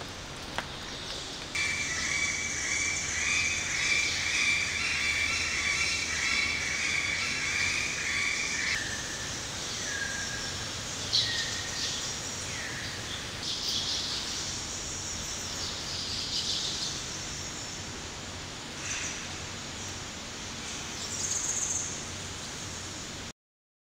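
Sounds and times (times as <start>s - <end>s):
background hiss: 0.0s - 23.3s
birds chirping: 0.6s - 17.9s.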